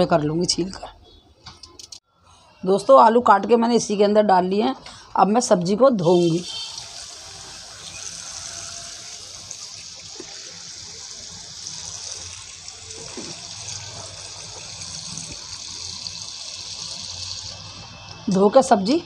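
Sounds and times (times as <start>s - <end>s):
tap water running into steel bowl: 6.2s - 17.9s.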